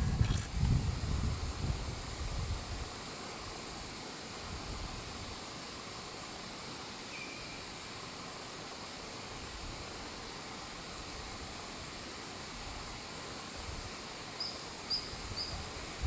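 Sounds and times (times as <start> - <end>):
wind rumble on microphone: 0.0 - 3.0
outdoor background hiss: 0.0 - 16.0.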